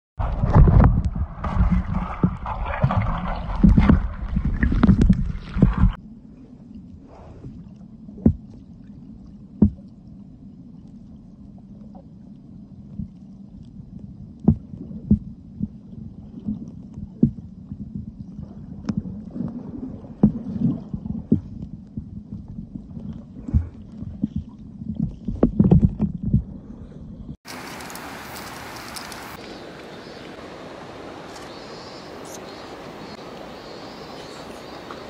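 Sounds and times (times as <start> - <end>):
sharp underwater knocks: 0.2 - 6.0, 8.2 - 8.6, 9.6 - 9.8
muffled underwater rumble: 0.2 - 27.4.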